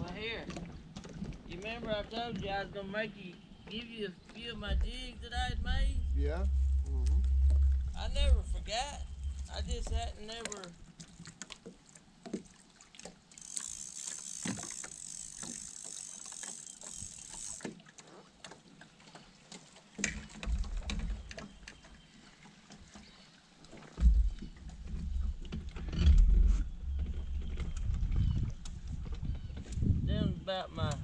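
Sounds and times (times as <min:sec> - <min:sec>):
water lapping against hull: 0:00.0 - 0:30.2
wind rumble on microphone: 0:04.4 - 0:10.4, 0:24.0 - 0:31.0
small knocks against hull: 0:09.1 - 0:13.2, 0:19.5 - 0:22.0, 0:23.7 - 0:29.8.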